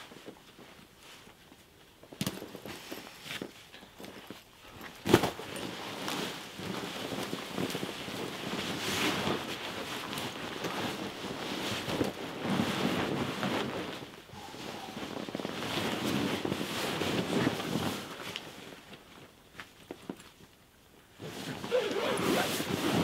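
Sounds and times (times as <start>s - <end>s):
rustling of fabric and leaves: 0.0s - 23.0s.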